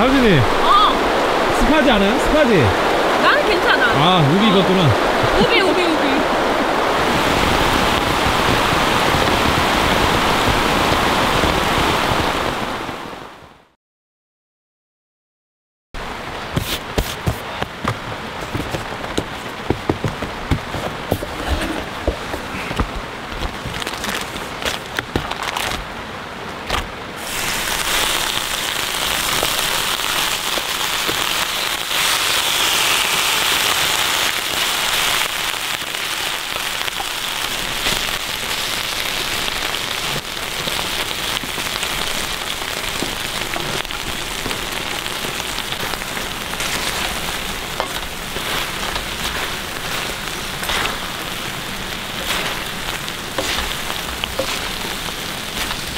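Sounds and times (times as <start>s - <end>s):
sharp raindrops striking: 0.0s - 13.0s, 26.7s - 55.9s
heavy rain drumming on a tarp: 0.0s - 13.5s, 16.0s - 55.9s.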